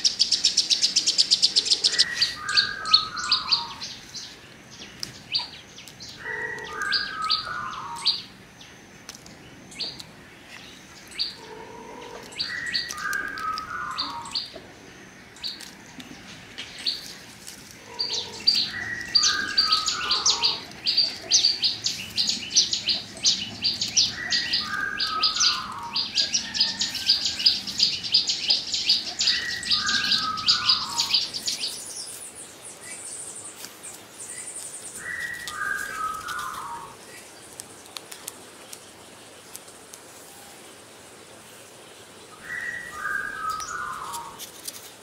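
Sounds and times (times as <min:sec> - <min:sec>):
lower falling bird call: 0:00.0 - 0:08.3, 0:17.8 - 0:37.4, 0:42.3 - 0:44.4
thin high bird trill: 0:16.7 - 0:37.6, 0:42.4 - 0:44.9.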